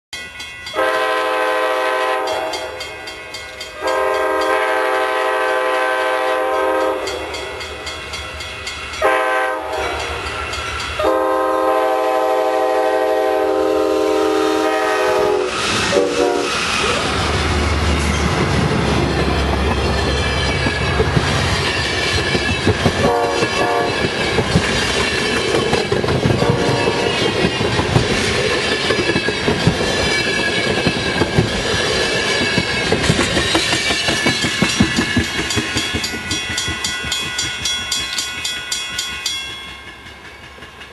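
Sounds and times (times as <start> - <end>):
locomotive horn blowing: 0.8 - 2.8, 3.8 - 7.6, 9.0 - 10.2, 11.0 - 16.6, 23.0 - 24.0, 26.4 - 27.2
locomotive engine rumble: 15.6 - 36.3
train wheels clacking over rail joints: 17.7 - 40.9.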